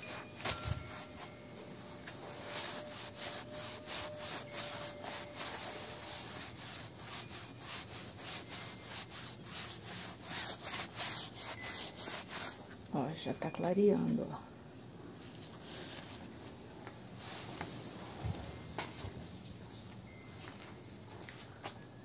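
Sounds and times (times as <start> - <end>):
sponge scrubbing fabric: 2.2 - 12.6.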